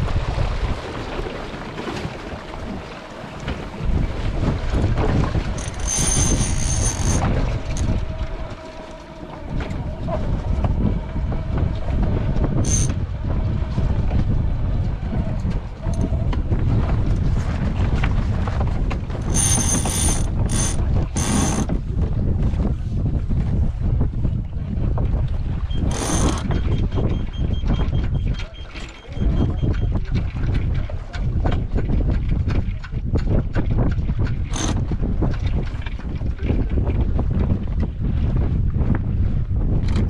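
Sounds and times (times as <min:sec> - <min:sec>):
wind buffeting microphone: 0:00.0 - 0:40.0
metallic ratcheting: 0:05.6 - 0:07.9, 0:12.6 - 0:13.0, 0:19.2 - 0:21.7, 0:25.9 - 0:26.5, 0:34.5 - 0:34.8.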